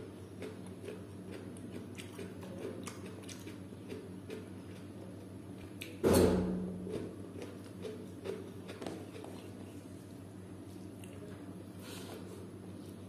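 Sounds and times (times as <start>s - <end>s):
fingers clicking through food: 0.0s - 6.0s, 6.9s - 9.6s
quiet eating sounds: 0.0s - 6.0s, 6.7s - 13.0s.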